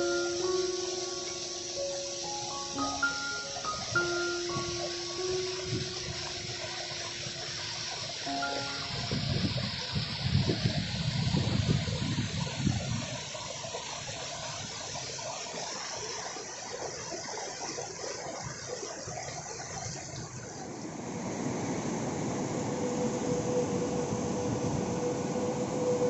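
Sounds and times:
faint steady hum: 0.0s - 10.0s, 20.6s - 26.0s.

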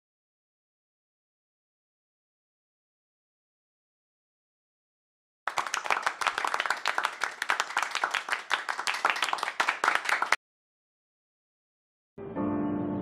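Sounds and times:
hands clapping: 5.5s - 10.4s.

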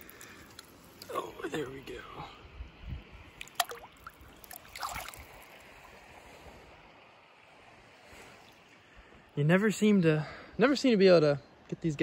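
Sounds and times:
water splashing and sloshing: 0.0s - 2.2s, 3.0s - 9.0s
faint river flow: 0.0s - 12.0s.

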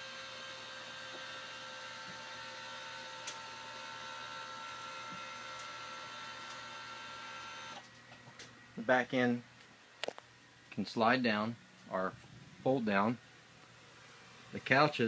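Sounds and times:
electric motor whining: 0.0s - 7.8s.

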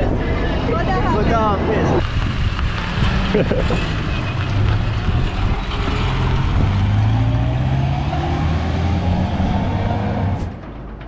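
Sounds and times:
road noise: 0.0s - 11.0s
truck engine accelerating: 1.9s - 10.6s.

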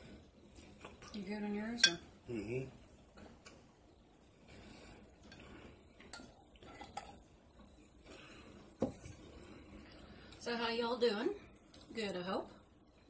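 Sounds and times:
tableware clinking: 1.8s - 2.1s.

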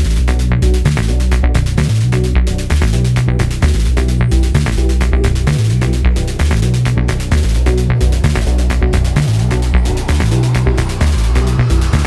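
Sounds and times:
electronic music with heavy bass: 0.0s - 12.0s.

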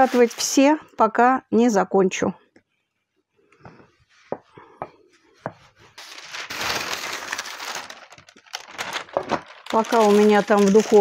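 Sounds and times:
baking paper rustling: 0.0s - 0.8s, 5.4s - 11.0s.

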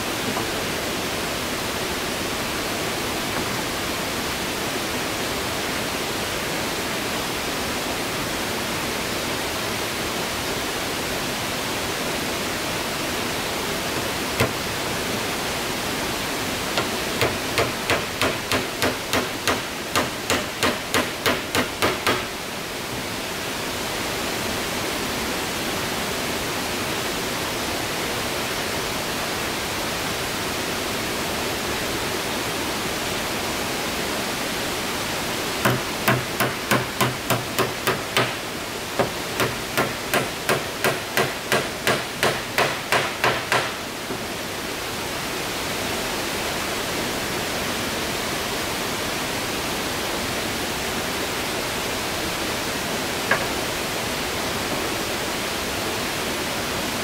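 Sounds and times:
hammer on wooden boards: 14.0s - 14.6s, 16.8s - 22.4s, 35.6s - 44.2s, 53.3s - 53.5s.

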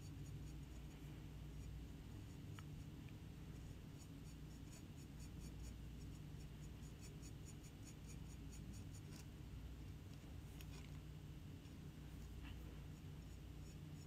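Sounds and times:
brush scratching on ceramic: 0.0s - 9.3s.

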